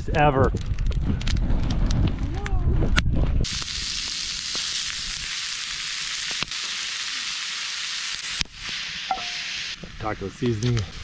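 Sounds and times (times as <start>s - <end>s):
meat sizzling in a skillet: 3.4s - 11.0s.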